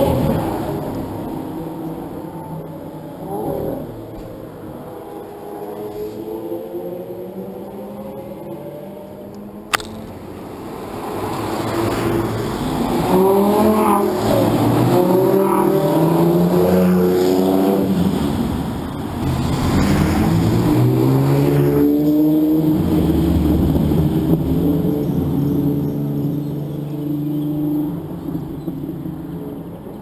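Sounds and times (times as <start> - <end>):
sports cars revving past: 0.0 - 29.7
sharp click: 9.7 - 10.2.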